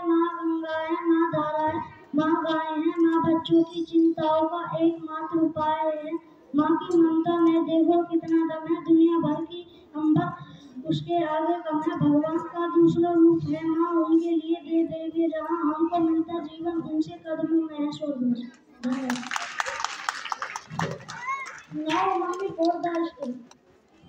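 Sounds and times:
child singing: 0:00.0 - 0:18.2.

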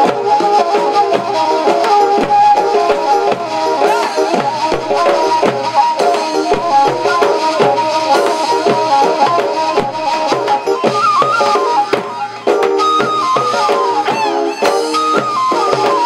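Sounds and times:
folk melody instrument: 0:00.0 - 0:16.0
large double-headed drum beats: 0:00.0 - 0:16.0.

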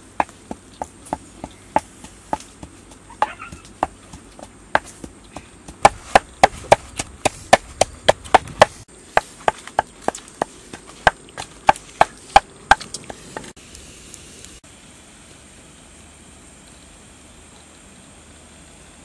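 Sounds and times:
pestle pounding food: 0:00.2 - 0:13.5.

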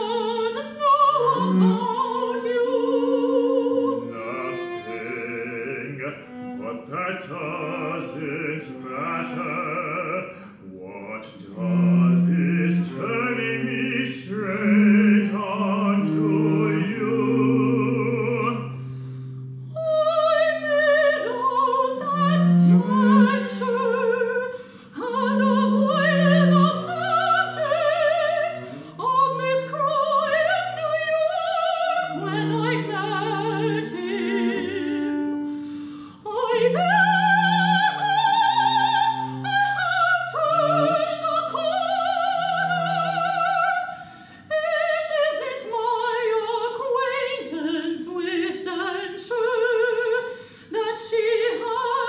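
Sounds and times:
soprano singing: 0:00.0 - 0:18.9, 0:19.7 - 0:35.5, 0:36.1 - 0:52.0
low cello notes: 0:00.0 - 0:45.8
man singing opera: 0:04.1 - 0:18.7.

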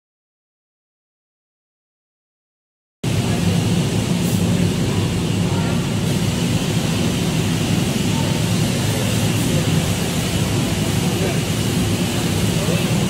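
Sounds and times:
pressure washer spraying: 0:03.1 - 0:13.0.

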